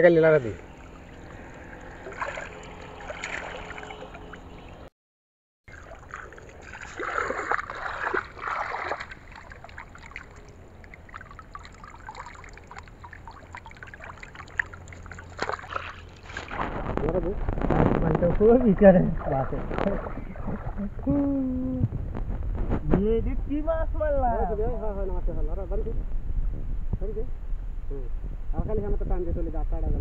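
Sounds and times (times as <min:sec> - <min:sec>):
muddy water sloshing: 0:00.4 - 0:04.9, 0:05.7 - 0:17.2, 0:18.3 - 0:21.3
small splashes and drips: 0:00.6 - 0:04.9, 0:05.7 - 0:16.8, 0:19.0 - 0:21.1.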